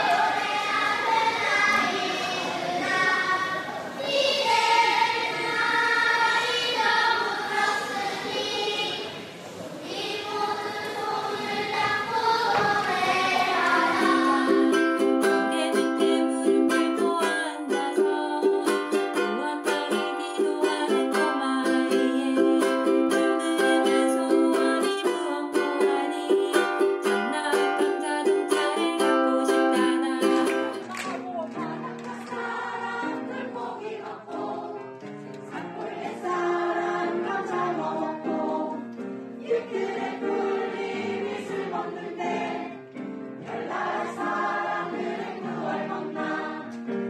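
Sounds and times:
children's choir singing: 0.0 - 47.0
strummed ukulele: 13.1 - 31.5
woman singing: 13.8 - 32.5.

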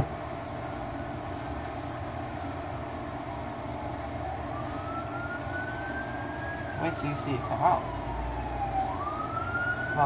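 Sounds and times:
siren rising in pitch: 4.0 - 10.0.

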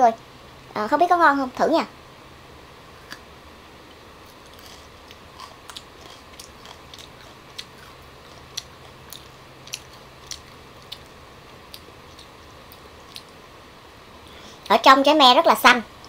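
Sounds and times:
crisp crunches of chewing: 4.2 - 13.4.

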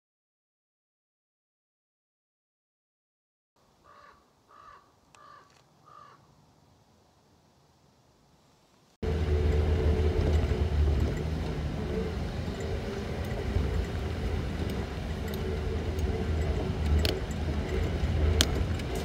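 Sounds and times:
road rumble: 3.6 - 19.0
crow cawing: 3.8 - 6.3
vehicle engine hum: 9.0 - 19.0.

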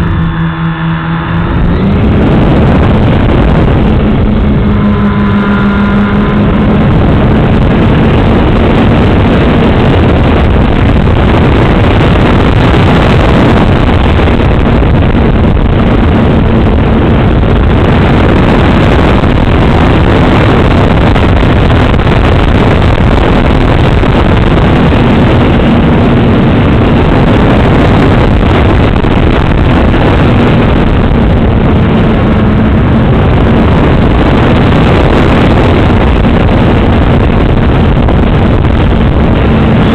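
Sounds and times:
faint motor hum: 0.0 - 9.0
propeller noise: 0.0 - 39.9
wind rushing: 0.0 - 39.9.

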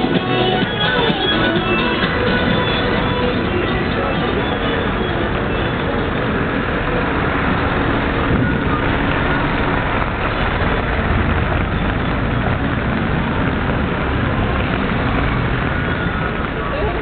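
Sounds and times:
rain on pavement: 0.0 - 17.0
vehicles passing on wet road: 0.0 - 17.0
rain on an umbrella: 5.2 - 17.0.

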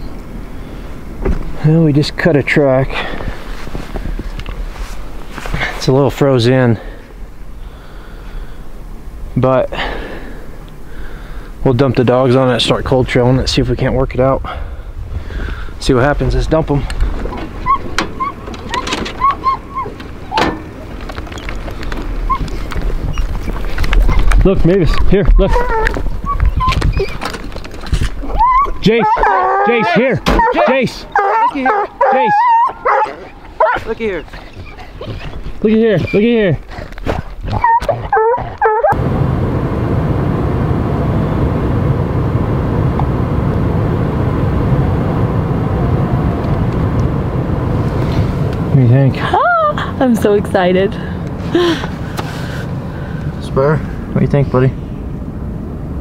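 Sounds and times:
truck engine and road noise: 0.0 - 56.0
hounds yipping and whining: 17.3 - 21.5, 22.2 - 39.0
low rumble: 38.5 - 56.0.

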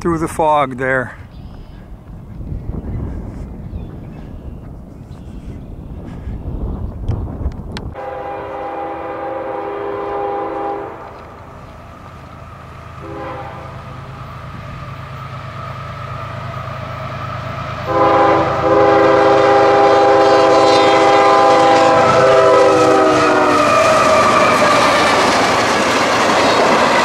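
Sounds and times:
locomotive low rumble: 1.0 - 27.0
locomotive air horn blasts: 8.0 - 11.2, 13.0 - 13.9, 17.8 - 24.7.

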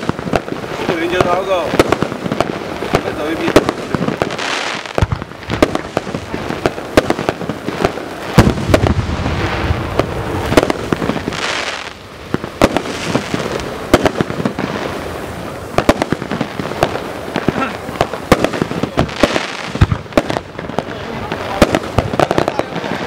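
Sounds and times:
firework crackling pops: 0.0 - 23.0
spark firework fizzing hiss: 0.0 - 23.0.

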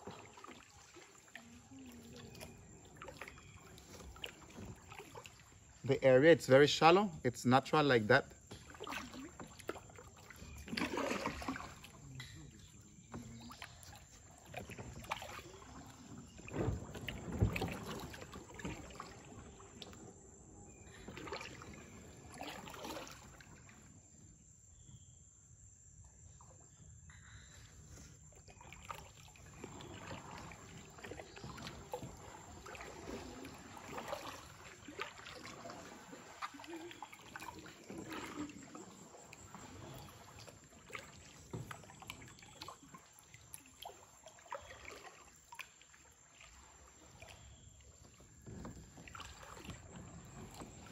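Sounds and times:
water dripping off paddle: 0.0 - 5.8, 8.2 - 20.1, 28.4 - 50.9
paddle dipping in water: 0.0 - 25.0, 26.3 - 50.9.

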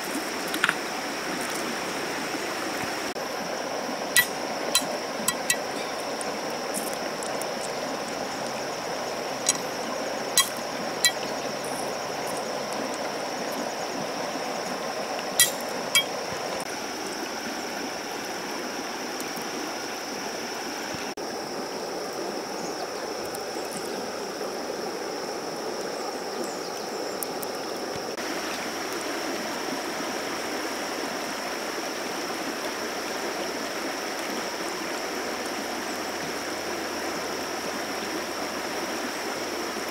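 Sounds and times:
river rushing over stones: 0.0 - 22.5, 27.2 - 39.9
metal blade knocking on stone: 4.2 - 5.7, 10.4 - 11.2, 15.4 - 16.2.

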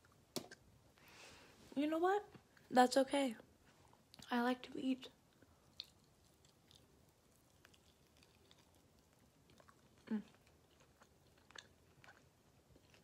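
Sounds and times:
person chewing: 5.3 - 13.0.

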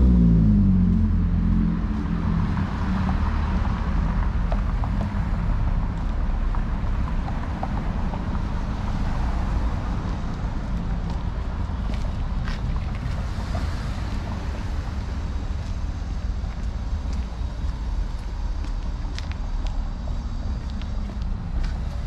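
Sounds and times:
vehicle engine passing by: 0.0 - 16.4
low rumble of road traffic: 0.0 - 22.0.

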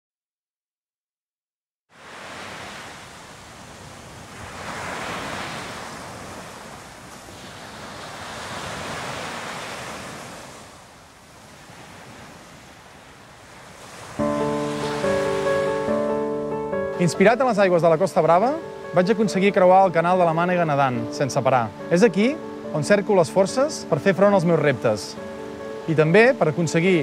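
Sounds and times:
sea waves washing onto beach: 1.9 - 27.0
music: 14.2 - 27.0.

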